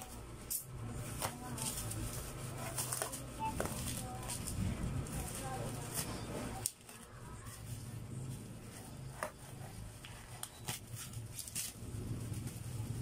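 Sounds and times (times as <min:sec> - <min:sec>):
bubble wrap crinkling: 0:00.0 - 0:13.0
low steady hum: 0:00.0 - 0:13.0
packing tape being pulled: 0:10.0 - 0:11.8.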